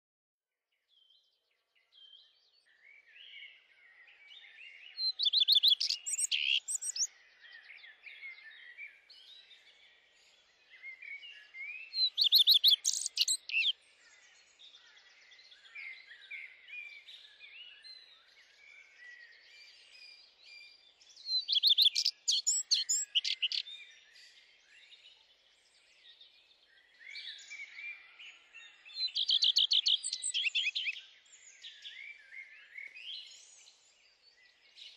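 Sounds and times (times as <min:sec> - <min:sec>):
loud bird song with fast trill: 0:00.8 - 0:34.9
songbirds chirping: 0:00.8 - 0:34.9.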